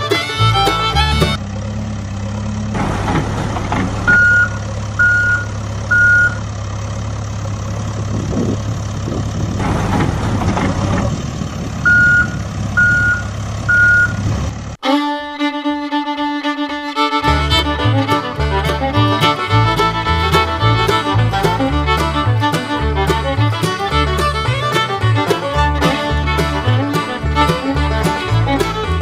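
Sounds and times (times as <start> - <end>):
violin music: 0.0 - 1.4, 14.8 - 29.0
heavy machine engine droning: 0.0 - 29.0
gravel rattling: 1.3 - 14.7
reversing alarm beeping: 4.0 - 6.5, 11.8 - 14.2.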